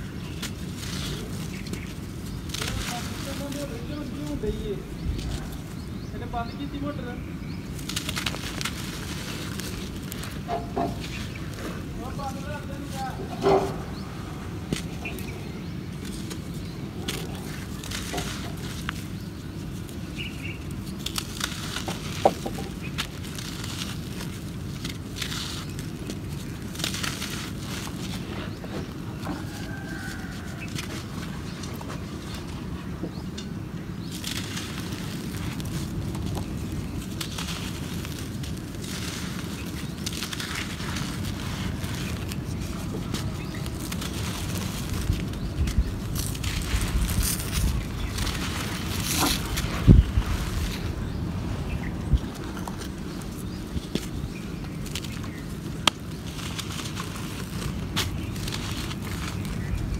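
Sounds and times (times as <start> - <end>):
dry dirt crunching by hand: 0.0 - 59.9
grit pattering: 0.0 - 59.9
steady low rumble: 30.1 - 59.9
grains trickling: 34.0 - 51.7.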